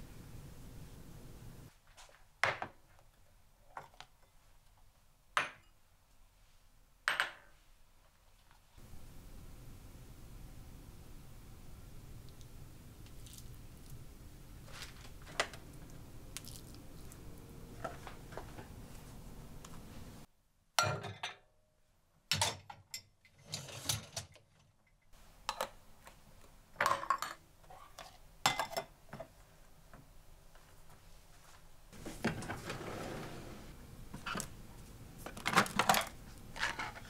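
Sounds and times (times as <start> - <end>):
kitchen drawer sliding open: 32.0 - 33.8.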